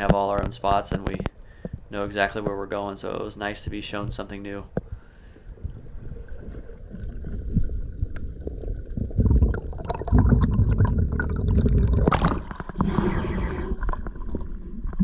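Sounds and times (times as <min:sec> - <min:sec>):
small clicks and bubbling: 0:00.0 - 0:02.8, 0:05.6 - 0:15.0
water rushing underwater: 0:05.5 - 0:15.0.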